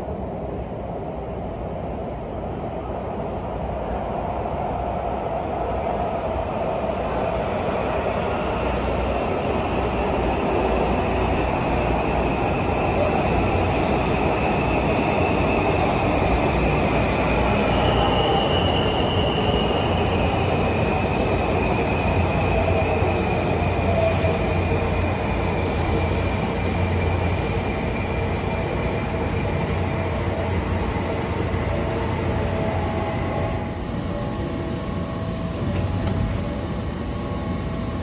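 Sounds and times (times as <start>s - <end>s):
high train whine: 0.0s - 38.0s
subway train rail rumble: 0.0s - 38.0s.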